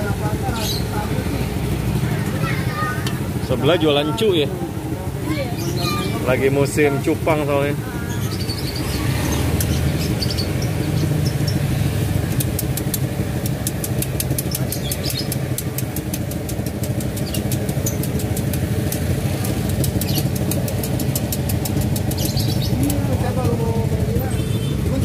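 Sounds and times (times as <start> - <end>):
engine idling: 0.0 - 25.0
hot oil crackling: 8.7 - 23.2.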